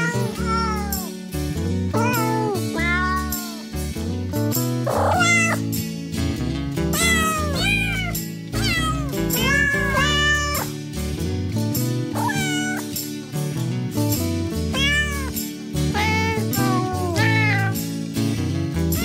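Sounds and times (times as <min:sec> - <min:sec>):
cat meowing: 0:00.0 - 0:01.1, 0:02.0 - 0:03.6, 0:04.9 - 0:05.7, 0:07.0 - 0:10.7, 0:12.2 - 0:13.0, 0:14.7 - 0:17.8
background music: 0:00.0 - 0:19.0.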